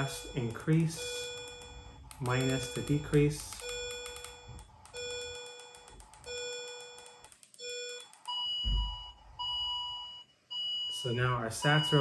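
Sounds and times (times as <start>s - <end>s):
keyboard clicks: 0.0s - 8.4s
low alarm tone: 0.0s - 12.0s
dull thump: 8.6s - 9.1s.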